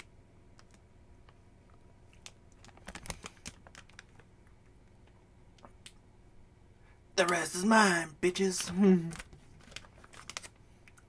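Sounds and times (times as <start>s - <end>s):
plastic wrapper crinkling: 1.7s - 5.2s, 9.1s - 11.0s.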